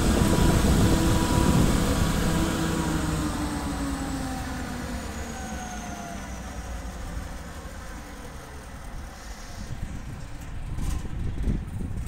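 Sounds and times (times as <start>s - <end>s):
diesel generator running down: 0.0s - 11.9s.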